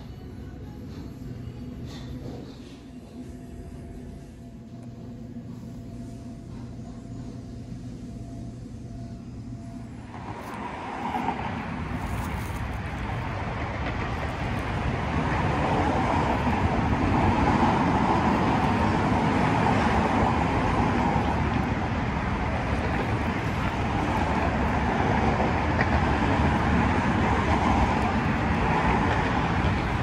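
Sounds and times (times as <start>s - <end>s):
low steady hum: 2.8s - 15.3s
road traffic rushing: 9.8s - 30.0s.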